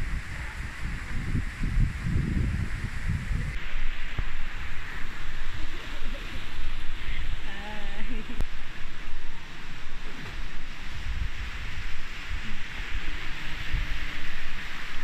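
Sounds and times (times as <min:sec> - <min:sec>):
steady hiss: 0:00.0 - 0:15.0
wind buffeting microphone: 0:00.0 - 0:15.0
person calling out: 0:07.1 - 0:08.4.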